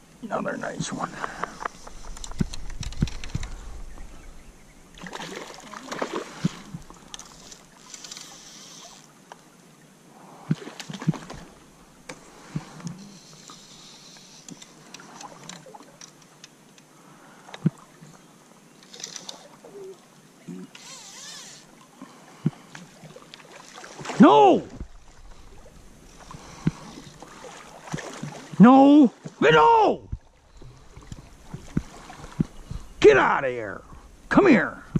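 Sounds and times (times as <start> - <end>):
river water splashing: 0.0 - 34.9
sharp clicks and knocks: 1.3 - 3.6.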